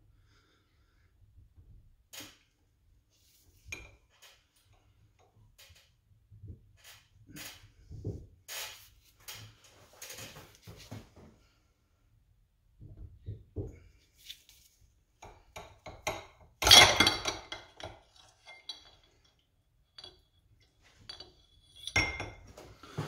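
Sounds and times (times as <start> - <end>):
metallic clinks and knocks: 15.3 - 22.7.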